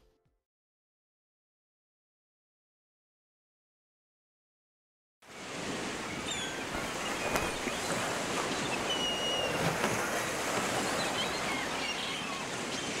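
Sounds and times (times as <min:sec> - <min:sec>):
ocean surf rushing: 0:05.3 - 0:13.0.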